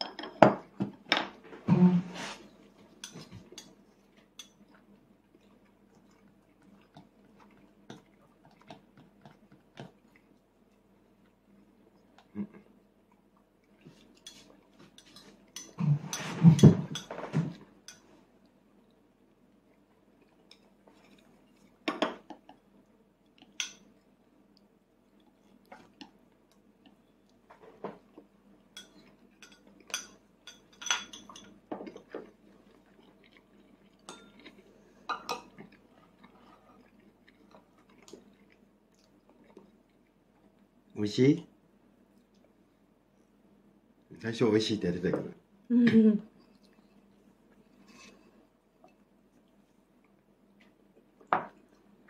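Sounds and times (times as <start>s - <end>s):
fork scraping and clinking on plate: 14.3s - 18.0s.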